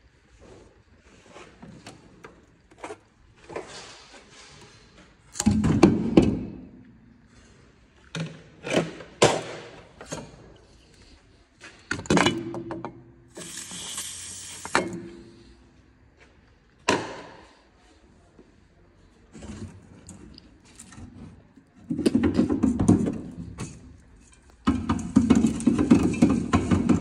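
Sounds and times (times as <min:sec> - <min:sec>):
brief hiss: 0:13.4 - 0:14.8.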